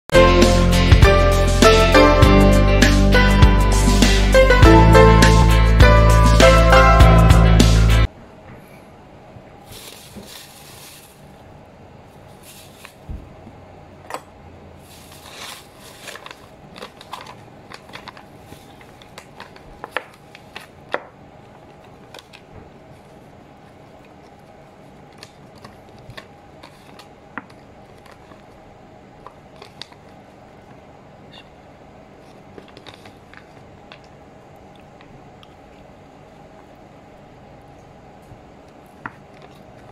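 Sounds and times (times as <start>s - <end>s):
steady room hum: 0.2s - 39.9s
plastic bag and paper rustling: 9.6s - 11.4s, 12.0s - 13.3s, 14.8s - 20.9s, 32.2s - 33.8s.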